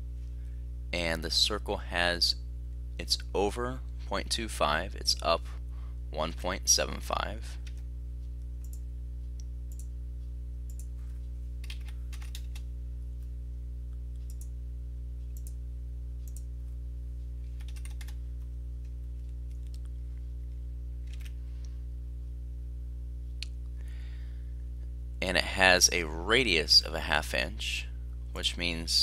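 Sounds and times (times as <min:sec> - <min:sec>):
low electrical hum: 0:00.0 - 0:29.0
keyboard and mouse clicks: 0:10.7 - 0:12.6, 0:17.6 - 0:18.2, 0:21.0 - 0:21.4.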